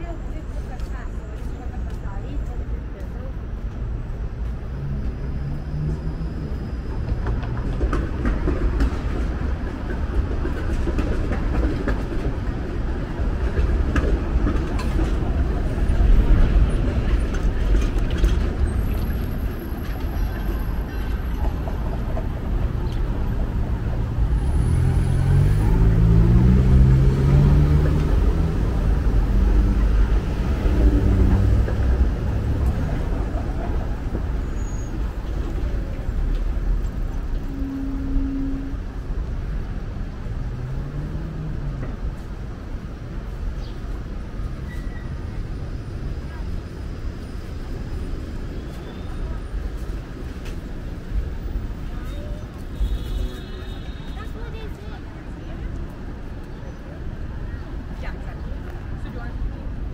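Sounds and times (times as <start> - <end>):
rumble of passing vehicles: 0.0 - 59.9
heavy vehicle engine pulling away: 22.7 - 35.3.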